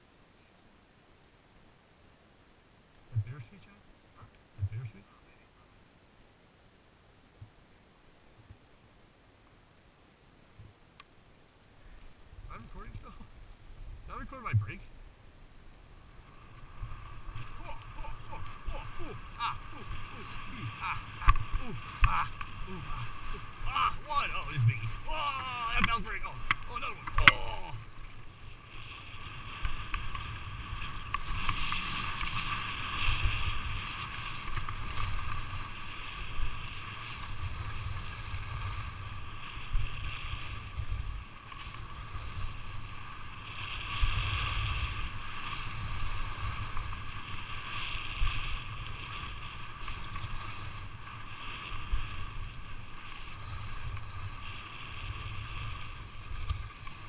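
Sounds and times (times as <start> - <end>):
wind rumble on microphone: 3.0 - 5.1, 11.8 - 57.0
skis carving on snow: 15.8 - 57.0.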